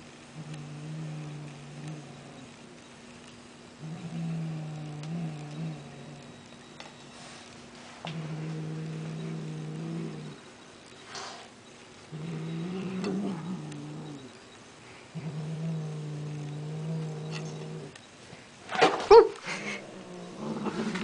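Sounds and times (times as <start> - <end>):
cat growling low: 0.3 - 2.6, 3.8 - 6.4, 8.0 - 10.4, 12.1 - 14.4, 15.1 - 18.0, 19.4 - 21.0.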